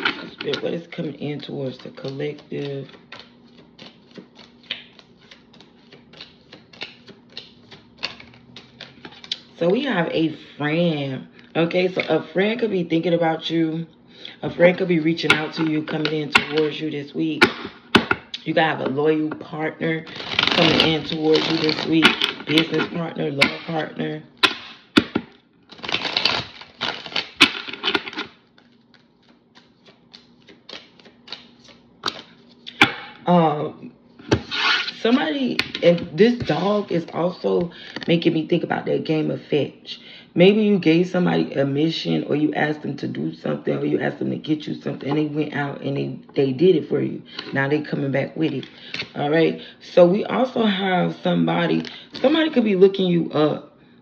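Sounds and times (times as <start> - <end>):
cards being shuffled: 0.0 - 10.4, 20.0 - 23.8, 24.4 - 33.0.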